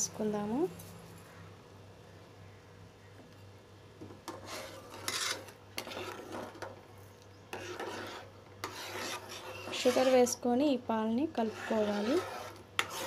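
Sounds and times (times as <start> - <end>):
faint steady hum: 0.0 - 13.0
spoon scraping bottom of pan: 4.2 - 6.8, 7.5 - 10.4, 11.3 - 13.0.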